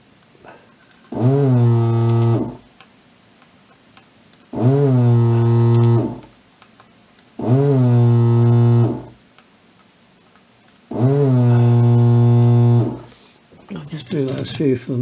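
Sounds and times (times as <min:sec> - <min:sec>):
vacuum pump humming: 0:01.1 - 0:02.7, 0:04.5 - 0:06.4, 0:07.4 - 0:09.2, 0:10.9 - 0:14.5.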